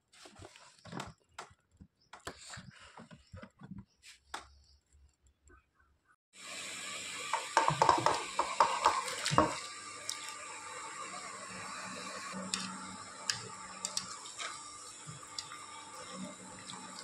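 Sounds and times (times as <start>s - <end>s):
hot water hissing in pot: 6.4s - 17.0s.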